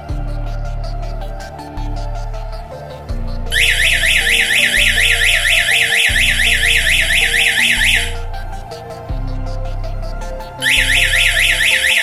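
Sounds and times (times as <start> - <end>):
background music: 0.0 - 12.0
electronic alarm siren wailing: 3.5 - 9.0, 10.6 - 12.0.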